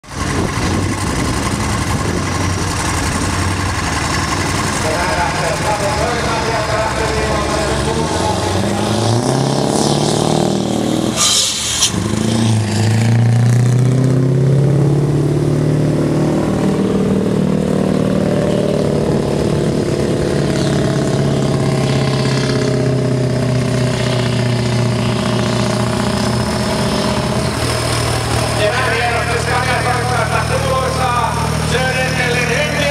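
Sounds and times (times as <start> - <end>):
diesel truck engine labouring uphill: 0.0 - 32.9
air hiss: 11.2 - 12.0.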